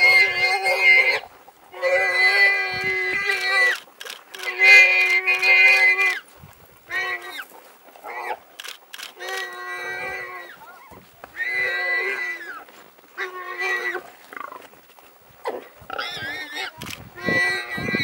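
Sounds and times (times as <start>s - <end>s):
warthog squealing: 0.0s - 6.2s, 9.2s - 14.6s, 15.4s - 18.0s.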